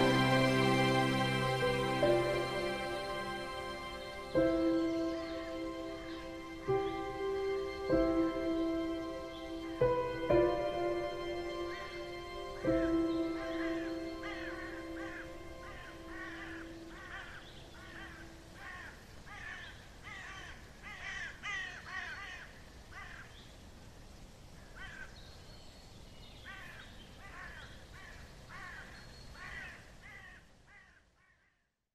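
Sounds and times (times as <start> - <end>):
crows cawing: 12.8 - 23.3, 24.6 - 25.2, 26.5 - 31.6.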